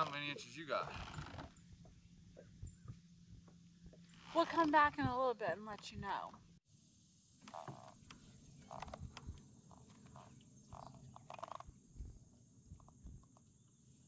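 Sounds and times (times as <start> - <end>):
short squeaks: 0.9 - 1.6.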